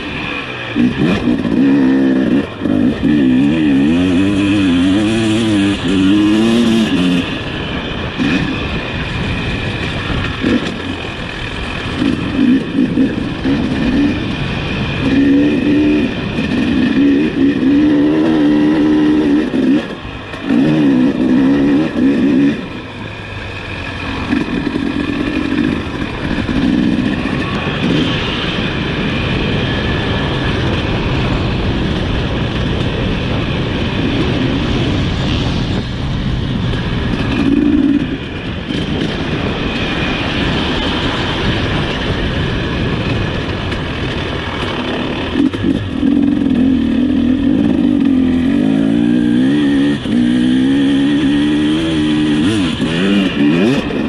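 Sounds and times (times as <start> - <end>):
motocross engine revving: 0.0 - 28.7, 44.6 - 54.0.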